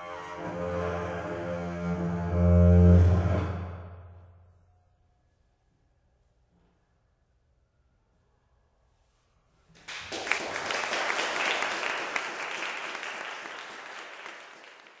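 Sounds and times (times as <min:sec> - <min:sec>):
audience applauding: 0:09.8 - 0:15.0.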